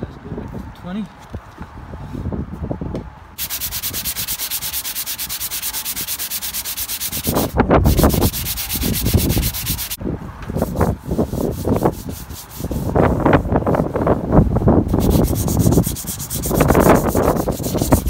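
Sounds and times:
sandpaper scrubbing car panel: 3.4 - 10.0, 10.6 - 14.0, 14.9 - 18.0.

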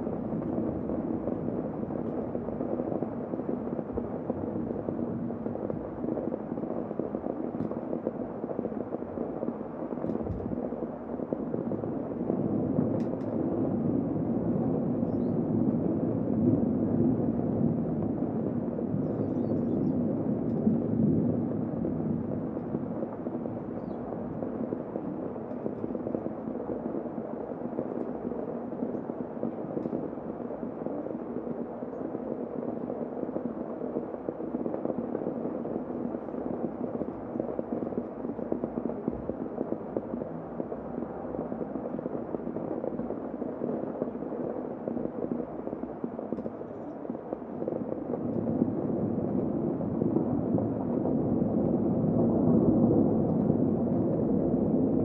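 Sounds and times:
muffled heavy rain: 0.0 - 55.0.

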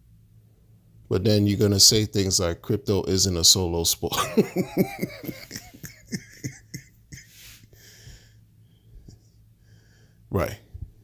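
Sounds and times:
man laughing sarcastically: 4.1 - 7.6
breath: 7.3 - 10.3.

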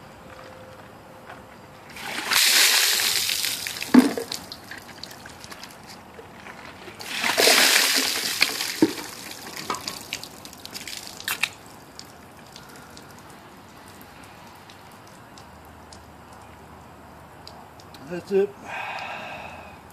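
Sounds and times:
water splashing from bucket: 1.9 - 5.6, 7.0 - 13.9
water dripping: 1.9 - 5.8, 7.0 - 18.1.

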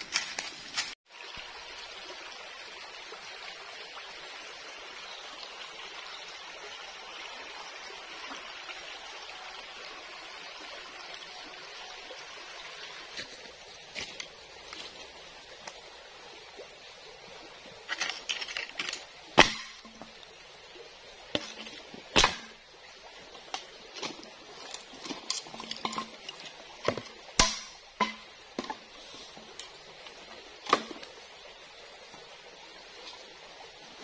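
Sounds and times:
footsteps on stones and leaves: 0.0 - 1.0, 13.1 - 15.2, 17.9 - 19.1.

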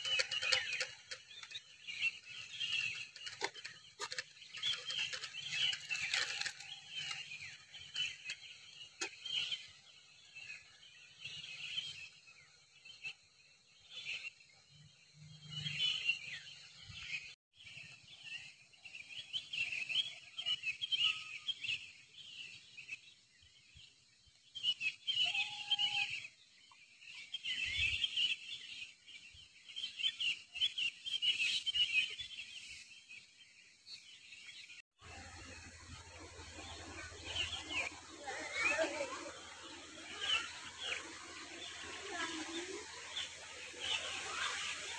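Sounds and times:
birds chirping and calling: 0.0 - 13.2, 24.6 - 44.9.

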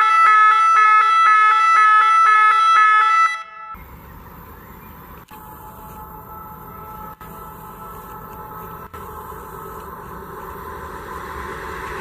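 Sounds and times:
warbling electronic warning horn: 0.0 - 3.8, 5.4 - 9.4.

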